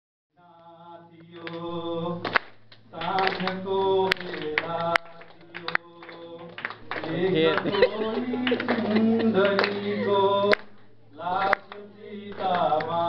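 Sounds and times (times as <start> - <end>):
hand claps: 1.2 - 13.0
person singing into a microphone: 7.1 - 10.6.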